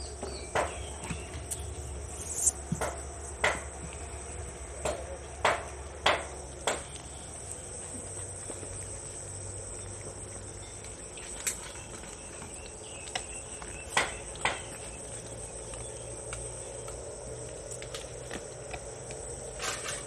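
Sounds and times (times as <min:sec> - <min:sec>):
insect chirring: 0:00.0 - 0:05.2.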